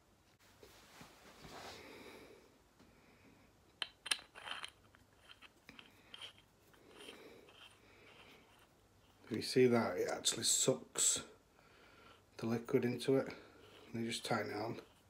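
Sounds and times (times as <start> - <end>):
hand rubbing metal fitting: 3.8 - 9.6, 13.0 - 15.0.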